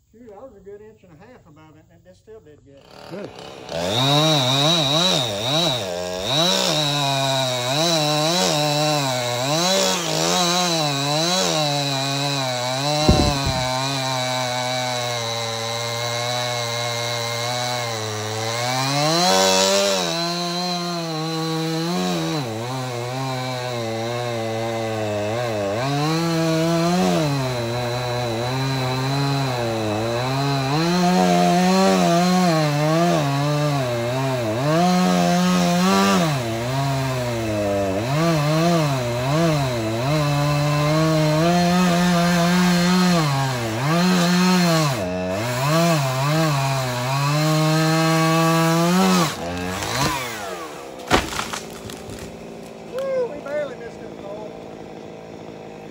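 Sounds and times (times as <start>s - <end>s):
chainsaw cutting wood: 2.7s - 55.9s.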